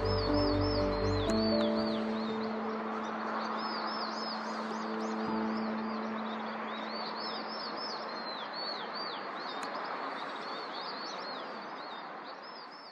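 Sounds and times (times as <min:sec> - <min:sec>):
held music chord: 0:00.0 - 0:07.7
songbirds chirping: 0:00.0 - 0:12.9.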